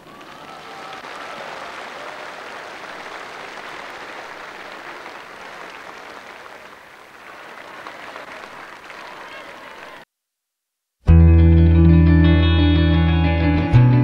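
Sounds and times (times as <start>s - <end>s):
large crowd applauding: 0.0s - 10.1s.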